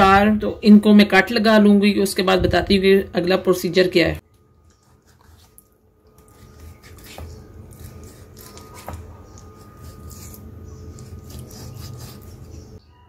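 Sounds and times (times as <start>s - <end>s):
knife slicing meat on board: 6.2s - 12.7s.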